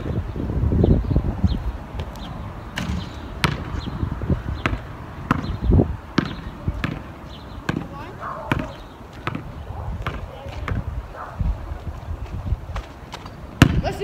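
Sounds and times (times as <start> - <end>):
basketball bouncing on asphalt: 1.9 - 11.0, 12.2 - 14.0.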